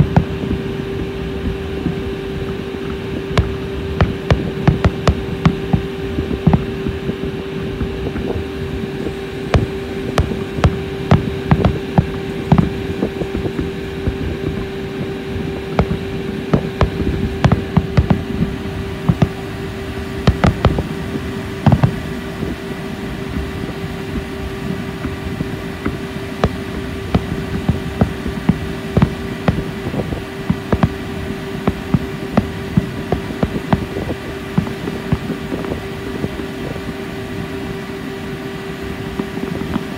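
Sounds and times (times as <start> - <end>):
low hum: 0.0 - 39.9
fireworks bangs and pops: 2.9 - 6.9, 9.5 - 14.6, 15.7 - 19.5, 20.2 - 21.0, 21.6 - 22.0, 25.1 - 37.0.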